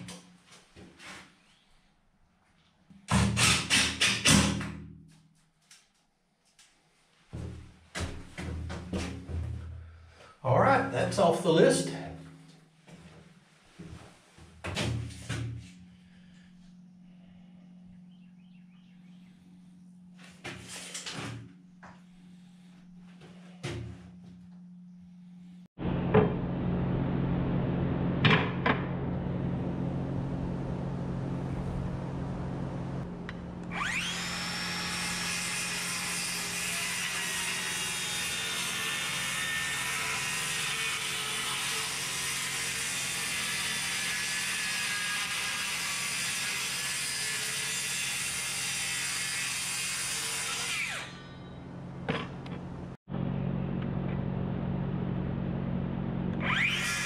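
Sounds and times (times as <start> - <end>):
low steady hum: 9.2 - 33.9
circular saw cutting plywood: 33.0 - 52.6, 56.3 - 57.0.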